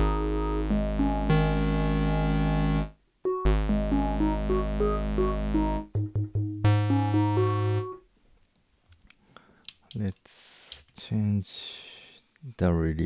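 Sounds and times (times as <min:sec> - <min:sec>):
synthesizer sequence of buzzy notes: 0:00.0 - 0:08.0.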